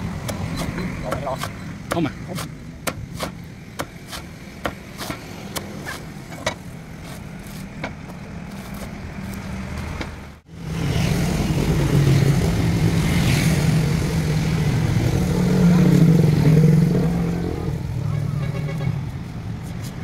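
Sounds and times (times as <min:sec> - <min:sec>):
cleaver chopping coconut husk: 0:00.0 - 0:09.4.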